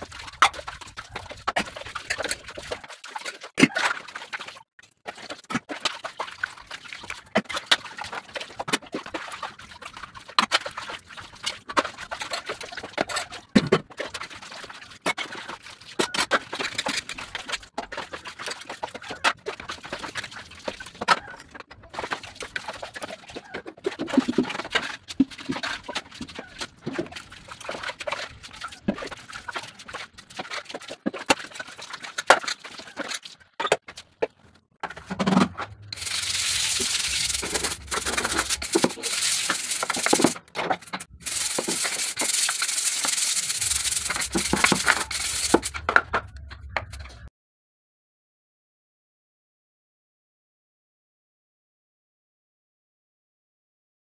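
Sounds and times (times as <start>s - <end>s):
water splashing: 0.0s - 16.6s, 35.9s - 45.9s.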